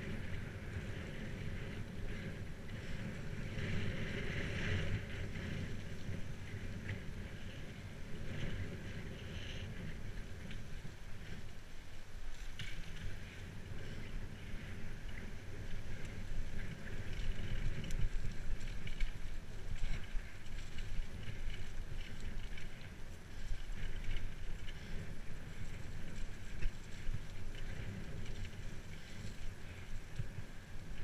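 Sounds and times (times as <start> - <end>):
bicycle tyres rumbling: 0.0 - 31.0
wind buffeting microphone: 0.0 - 31.0
small clicks and rattles: 12.3 - 31.0.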